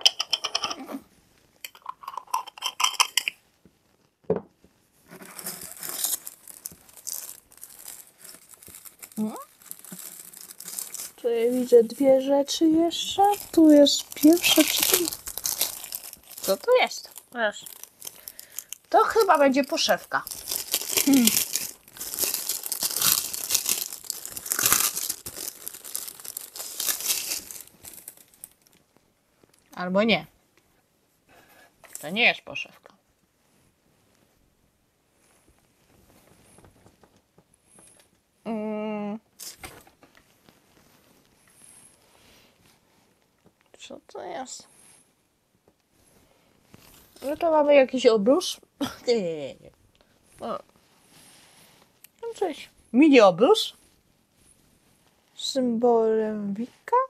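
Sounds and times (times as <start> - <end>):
knock: 4.3 - 4.5
plastic packaging crinkling: 5.1 - 28.9.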